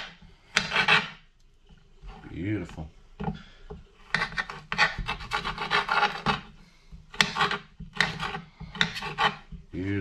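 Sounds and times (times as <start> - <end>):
knife chopping on a cutting board: 0.0 - 1.2, 3.2 - 9.7.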